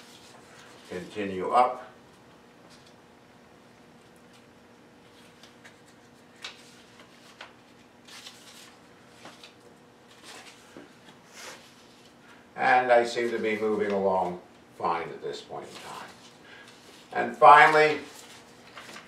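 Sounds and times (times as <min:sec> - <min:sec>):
low room hum: 0:00.0 - 0:19.0
paper cards rustling and tapping: 0:05.1 - 0:12.2, 0:15.6 - 0:19.0.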